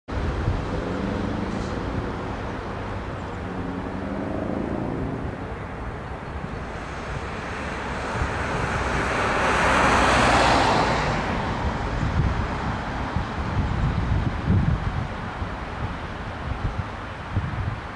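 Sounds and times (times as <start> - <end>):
steady low rumble: 0.1 - 10.0
car driving past: 0.2 - 13.9.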